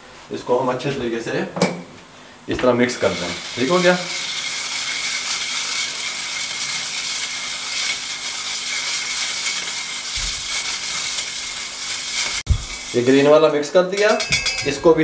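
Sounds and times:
steady hissing noise: 10.2s - 15.0s.

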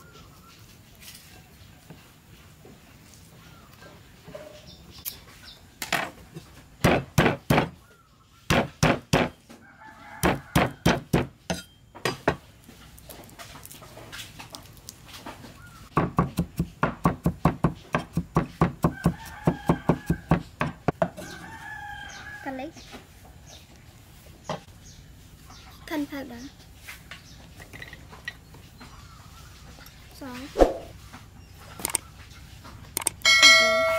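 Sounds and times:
cleaver chopping on wooden block: 6.8s - 7.8s, 8.5s - 9.4s, 10.2s - 11.6s, 15.9s - 21.1s.

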